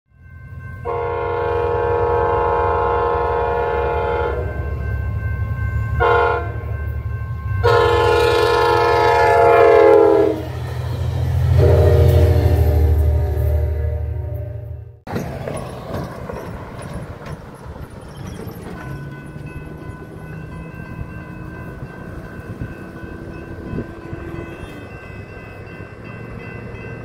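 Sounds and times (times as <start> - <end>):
crossing warning bell ringing: 0.1 - 27.0
train engine and wheels rumbling: 0.1 - 27.0
train horn blasts: 0.8 - 4.7, 6.0 - 6.7, 7.6 - 15.0, 23.3 - 25.0.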